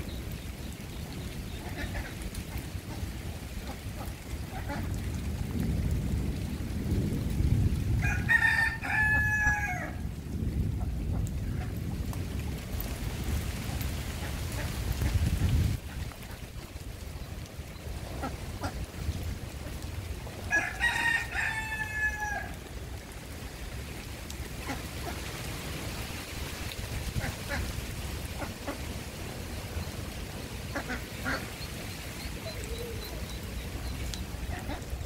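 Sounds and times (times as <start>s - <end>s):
rooster crowing: 8.0s - 10.0s, 20.5s - 22.6s.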